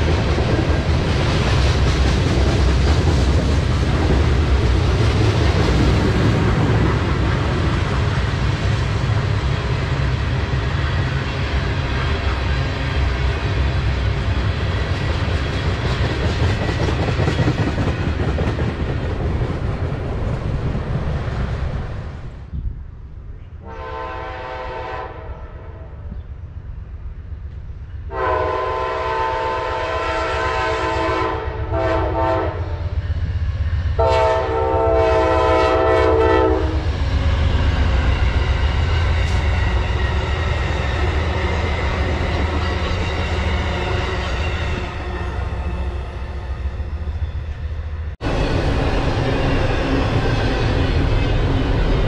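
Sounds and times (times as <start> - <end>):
train rumbling by: 0.0 - 52.0
train horn blasts: 23.6 - 26.1, 28.1 - 33.0, 34.0 - 36.9.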